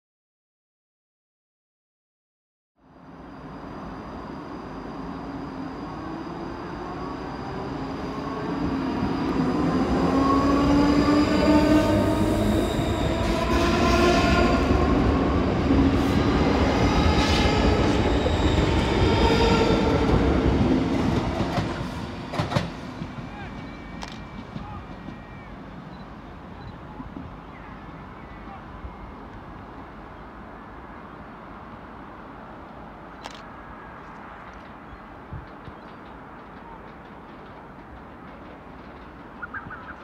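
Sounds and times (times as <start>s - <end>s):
train traction motor whine: 2.8s - 28.0s.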